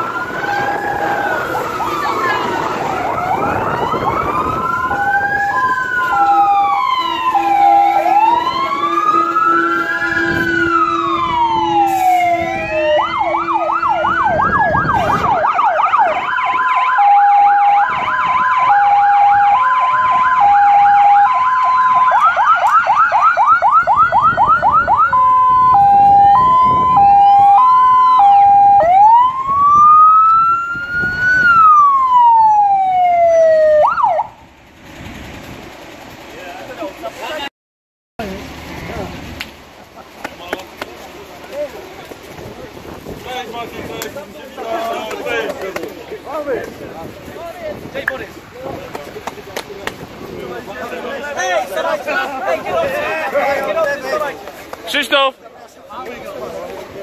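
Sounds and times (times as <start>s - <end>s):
two-tone hi-lo siren: 0.0s - 34.4s
fast yelp siren: 0.0s - 34.5s
wailing sirens: 0.0s - 35.3s.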